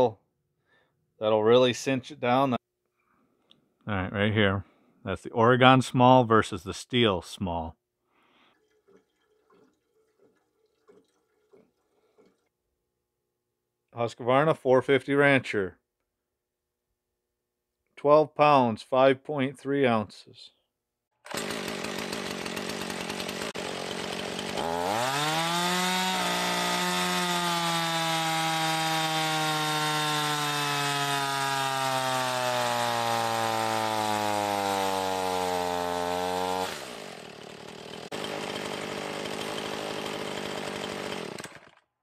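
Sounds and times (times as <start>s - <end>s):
chainsaw engine revving: 21.2s - 41.8s.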